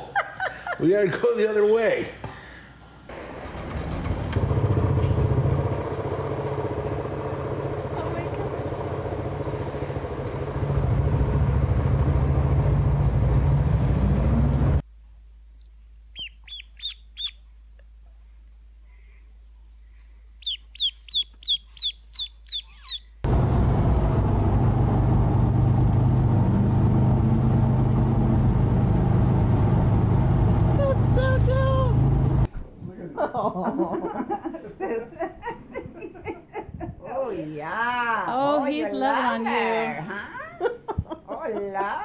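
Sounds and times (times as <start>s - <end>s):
loud steady rumble: 3.1s - 14.8s, 23.3s - 32.5s
motorcycle riding on highway: 3.2s - 14.8s
ducklings peeping: 16.1s - 17.5s, 20.3s - 23.2s.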